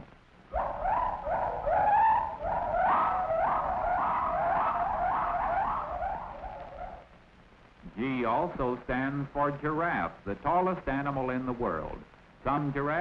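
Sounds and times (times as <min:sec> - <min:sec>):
gibbon whooping call: 0:00.5 - 0:07.1.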